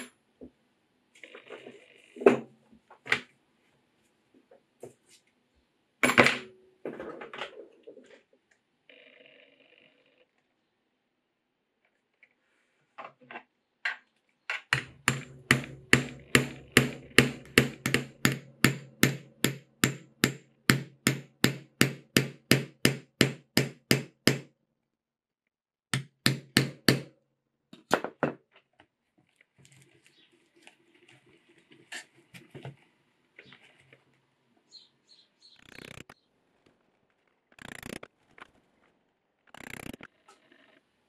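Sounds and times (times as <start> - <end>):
hammer striking chisel through leather: 14.8 - 24.5, 26.0 - 27.1.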